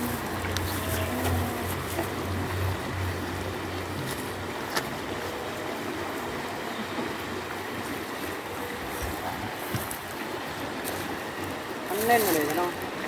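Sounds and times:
river flowing: 0.0s - 13.0s.

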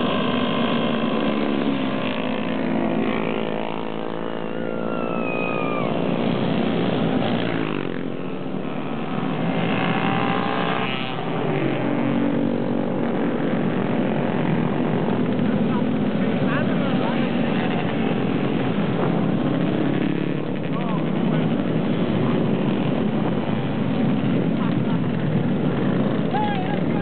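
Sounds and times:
motorcycles riding past: 0.0s - 27.0s
short falling high tone: 4.5s - 6.1s.

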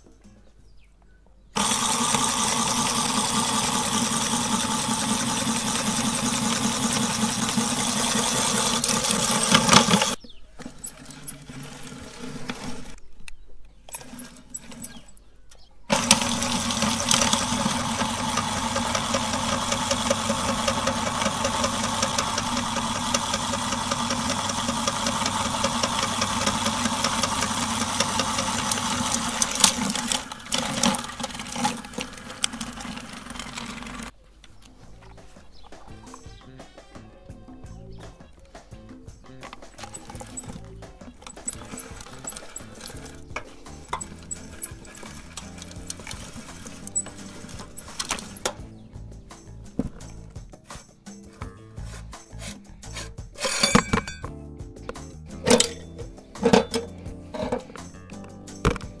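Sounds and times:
electric meat grinder running: 1.6s - 10.2s, 15.9s - 34.1s, 43.8s - 48.5s.

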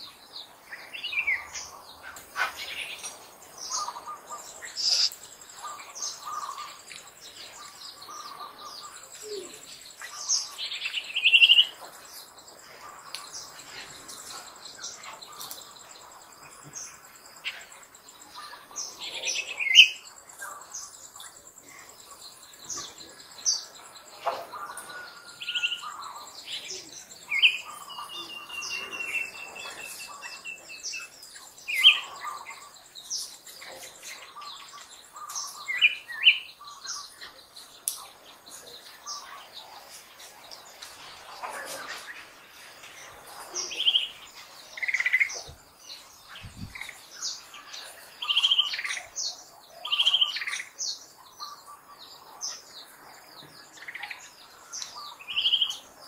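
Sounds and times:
high insect whine: 0.0s - 49.2s.

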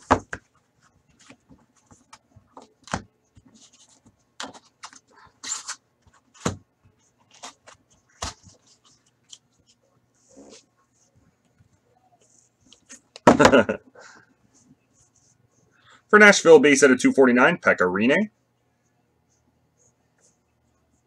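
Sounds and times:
cards rustling: 1.1s - 9.8s.

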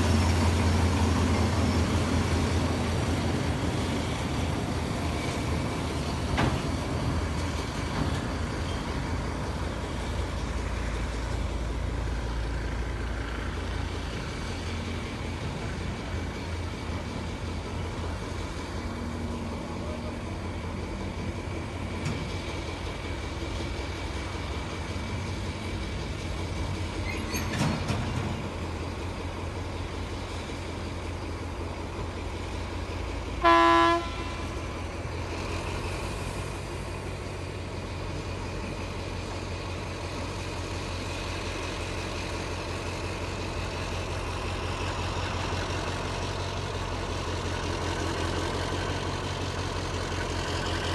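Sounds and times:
diesel locomotive engine humming: 0.0s - 50.9s
train horn blast: 33.4s - 34.6s.

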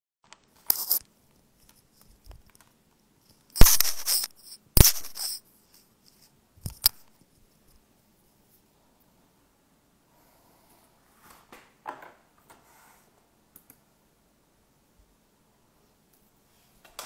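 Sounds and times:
quick clicks: 3.5s - 5.4s
handling noise on microphone: 3.6s - 5.4s
scratchy scrapes: 3.6s - 5.4s.

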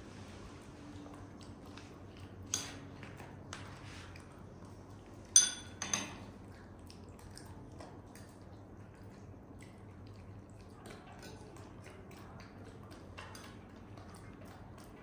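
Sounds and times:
spoon tapping and scraping bowl: 2.5s - 3.6s
spoon ringing clinks on bowl: 5.4s - 6.1s.

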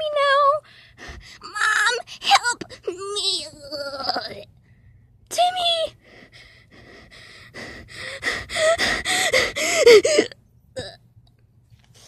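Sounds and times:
person gasping and sobbing: 0.7s - 3.0s, 6.0s - 10.4s.

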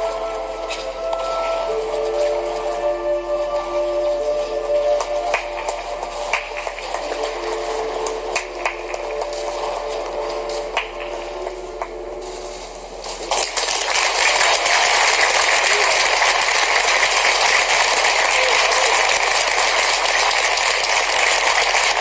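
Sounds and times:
skating music: 0.0s - 22.0s
audience applause: 3.4s - 12.0s, 13.0s - 22.0s.

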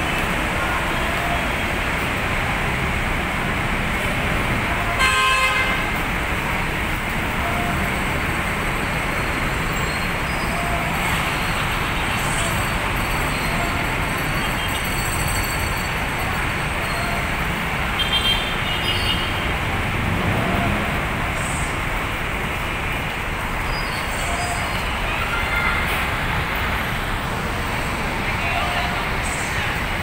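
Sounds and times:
city traffic: 0.0s - 30.0s
high horn toots: 4.9s - 6.0s
vehicle horn blaring: 5.0s - 5.8s.

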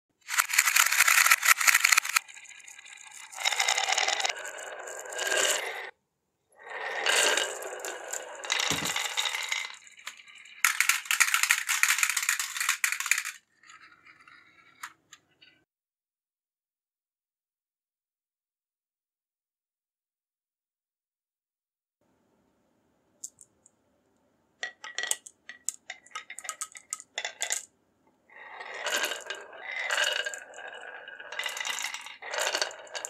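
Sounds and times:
marble clicks: 0.2s - 5.9s, 7.0s - 15.6s, 23.2s - 23.7s, 24.6s - 27.7s, 28.5s - 33.0s
marbles rattling down wooden tracks: 0.2s - 5.9s, 6.8s - 15.0s, 24.6s - 27.7s, 28.4s - 33.0s.

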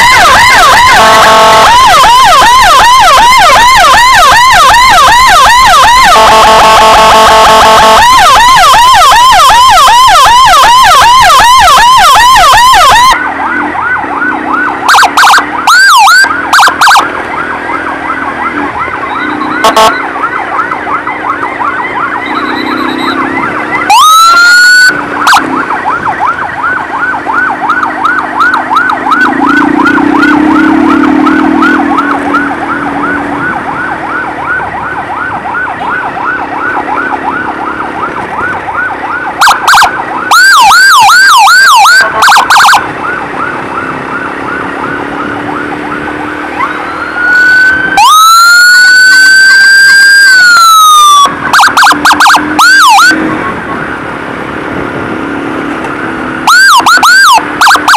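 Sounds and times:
rising siren whoop: 0.0s - 54.0s, 56.4s - 57.9s
siren blips: 0.0s - 54.0s, 56.4s - 57.9s
loud yelping siren: 0.0s - 54.2s, 56.2s - 57.9s
quieter yelping siren: 0.0s - 54.2s, 56.2s - 57.9s
buzzy horn tone: 0.5s - 2.1s, 23.9s - 24.9s, 48.0s - 53.3s.

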